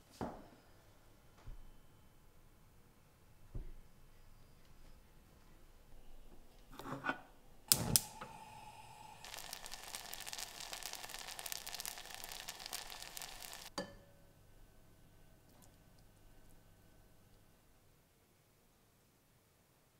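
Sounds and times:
beans bubbling in a saucepan: 7.7 - 13.8.

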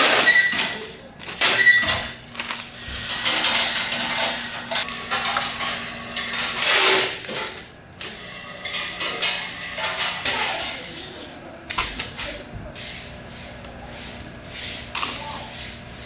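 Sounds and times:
clattering and rustling: 0.0 - 7.7.

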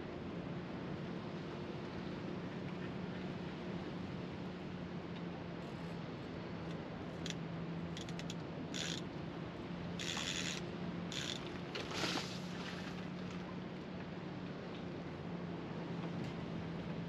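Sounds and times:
fishing reel ratcheting clicks: 8.0 - 9.0, 10.0 - 11.5.

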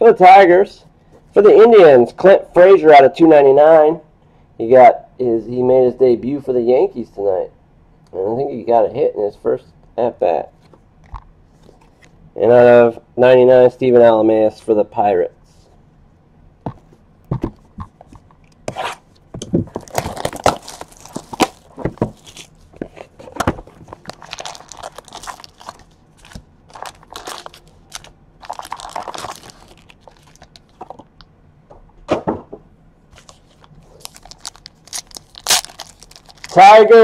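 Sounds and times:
crinkling and rustling packs: 19.4 - 31.2, 33.2 - 37.0.

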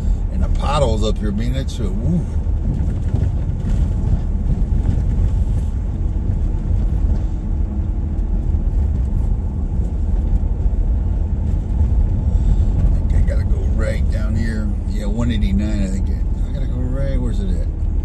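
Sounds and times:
car road and engine rumble: 0.0 - 18.0.

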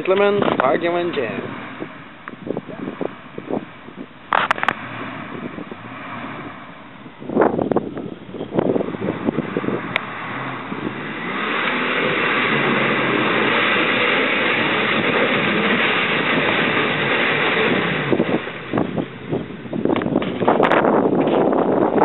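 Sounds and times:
wind buffeting microphone: 0.0 - 22.0
engine revving hard: 0.5 - 7.6, 8.5 - 20.8
mud splashing: 8.7 - 20.9.

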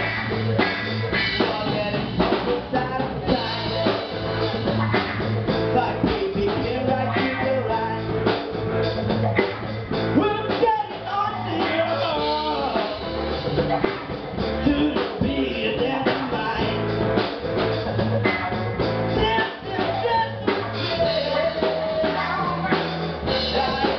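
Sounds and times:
drum kit beat: 0.0 - 23.9
guitar: 0.0 - 23.9
person singing: 1.2 - 8.3, 10.2 - 13.6, 14.4 - 16.9, 19.1 - 23.9.

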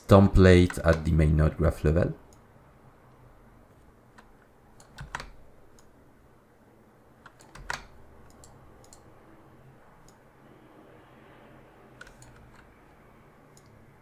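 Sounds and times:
mouse and keyboard clicks: 7.2 - 9.1, 12.0 - 12.7.

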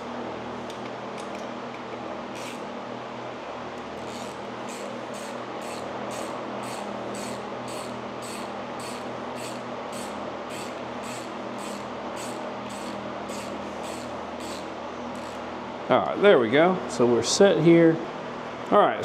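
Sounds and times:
background hum: 0.0 - 18.7
hand ratchet clicking: 4.1 - 15.4.

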